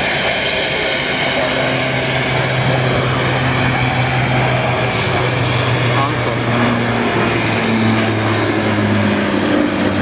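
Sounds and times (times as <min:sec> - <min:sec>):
engine rush: 0:00.0 - 0:10.0
propeller drone: 0:00.0 - 0:10.0.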